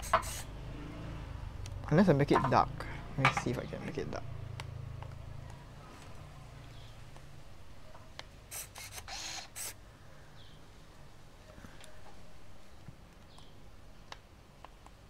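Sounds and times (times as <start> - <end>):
camera motor whirring: 8.5 - 9.8.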